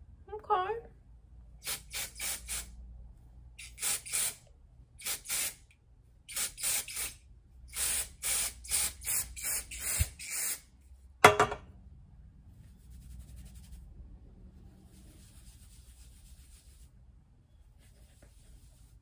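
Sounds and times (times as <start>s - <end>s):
hair spray puffs hissing: 1.6s - 2.7s, 3.6s - 4.4s, 5.0s - 5.6s, 6.3s - 10.6s.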